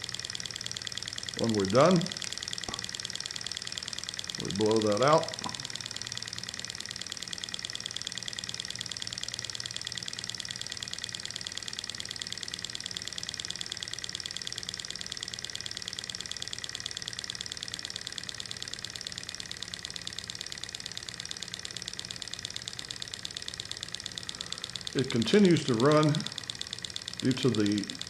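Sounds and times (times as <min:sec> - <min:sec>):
stirling engine model ticking: 0:00.0 - 0:28.0.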